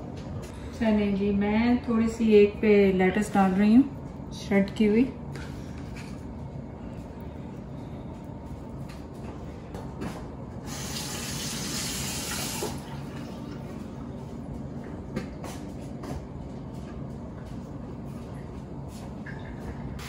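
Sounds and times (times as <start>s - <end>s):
water tap running: 10.6s - 13.4s.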